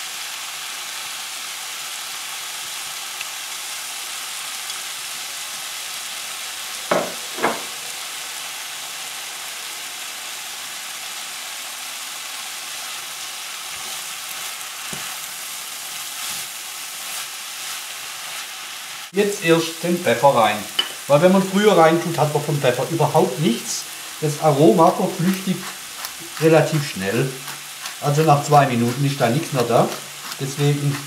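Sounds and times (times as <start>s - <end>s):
food sizzling in frying pan: 0.0s - 31.0s
sharp knocks: 6.9s - 7.7s.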